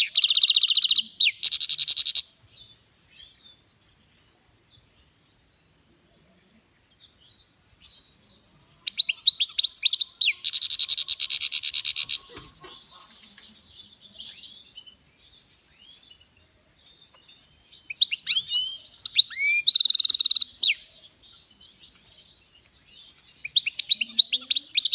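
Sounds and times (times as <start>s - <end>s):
goldfinch twittering song: 6.8s - 24.9s.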